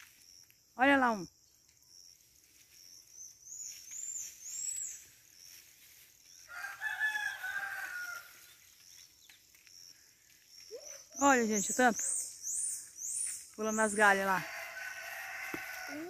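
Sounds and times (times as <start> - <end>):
rooster crowing: 6.5 - 8.4, 14.2 - 16.0.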